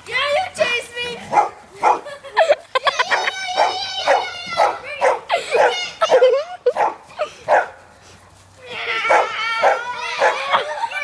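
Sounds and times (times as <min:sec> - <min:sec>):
dog barking and yipping: 0:01.3 - 0:02.0, 0:03.1 - 0:07.8, 0:09.0 - 0:10.9.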